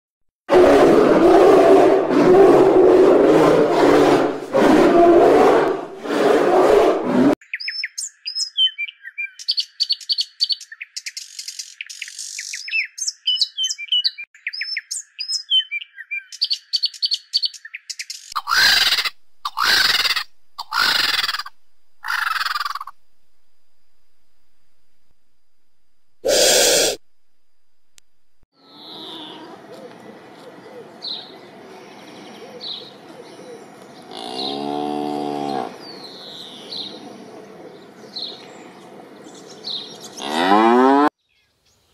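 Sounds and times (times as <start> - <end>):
songbird chirps and trills: 7.4 - 23.0
vulture harsh falling calls: 18.4 - 23.0, 26.3 - 27.0.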